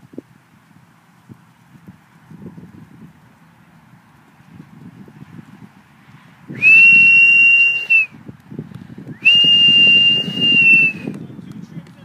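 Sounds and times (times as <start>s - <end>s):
person whistling piercing notes: 6.6s - 8.1s, 9.2s - 11.1s.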